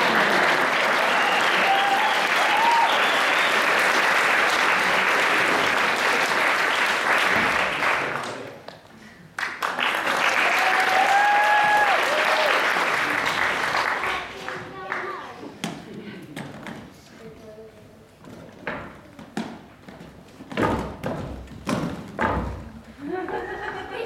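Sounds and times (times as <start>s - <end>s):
audience applauding: 0.0s - 8.6s, 9.3s - 15.2s.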